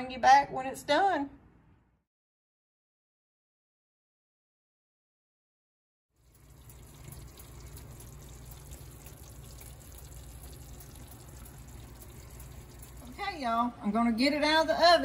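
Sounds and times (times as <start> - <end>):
oven low hum: 6.2 - 15.0.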